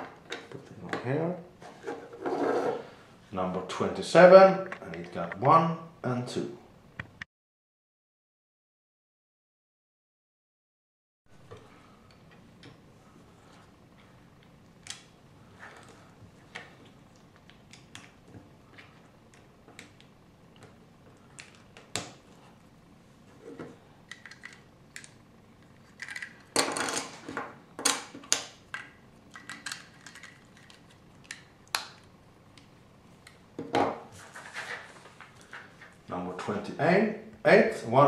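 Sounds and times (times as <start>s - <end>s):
plastic pieces clicking: 27.8s - 32.0s.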